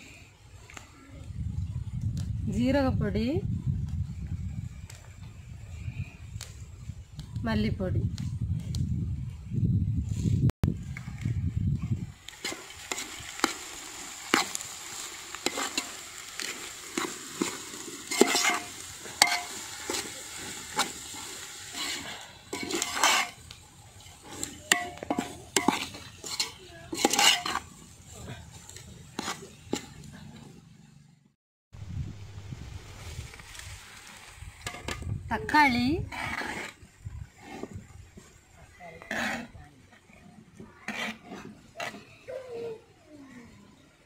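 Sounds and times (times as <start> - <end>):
spoon scraping metal pot: 15.4 - 27.9, 40.8 - 42.2.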